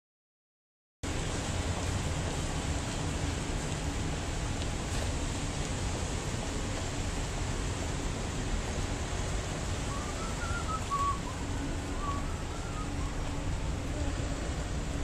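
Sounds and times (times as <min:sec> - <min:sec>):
street traffic rumble: 0:01.0 - 0:15.0
person whistling: 0:09.9 - 0:13.5.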